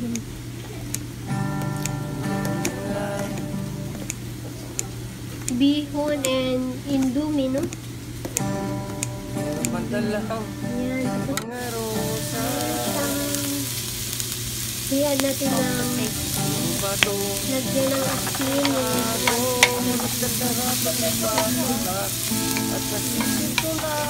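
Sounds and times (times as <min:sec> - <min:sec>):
vegetables sizzling in a pan: 0:06.2 - 0:24.0
background music: 0:15.5 - 0:24.0
utensil knocking against pan: 0:17.0 - 0:24.0.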